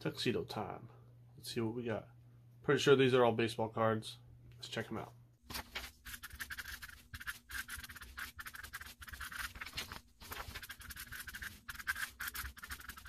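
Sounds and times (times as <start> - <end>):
marker scratching on paper: 6.0 - 13.0.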